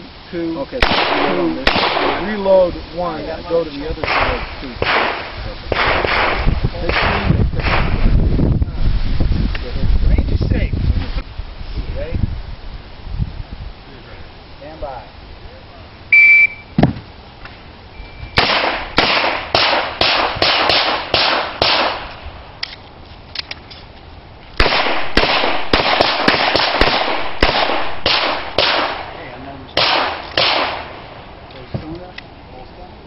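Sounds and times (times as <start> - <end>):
rapid pistol gunshots: 0.8 - 2.3, 4.0 - 8.0, 18.4 - 22.2, 24.6 - 29.2, 29.8 - 31.1
shot timer beep: 16.1 - 16.7.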